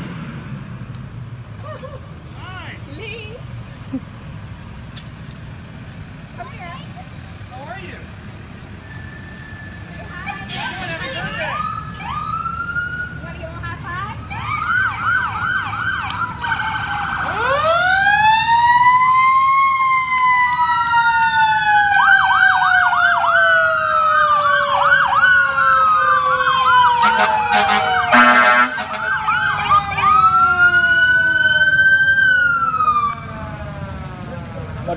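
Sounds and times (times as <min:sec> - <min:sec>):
emergency vehicle sirens: 0:01.7 - 0:34.9
loud horn blast: 0:27.0 - 0:29.2.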